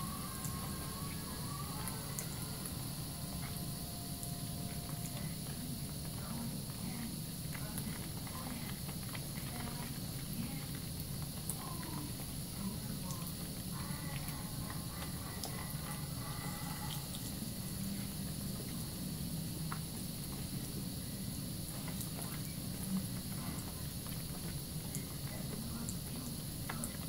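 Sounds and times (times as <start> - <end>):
faucet running into sink: 0.0 - 15.8.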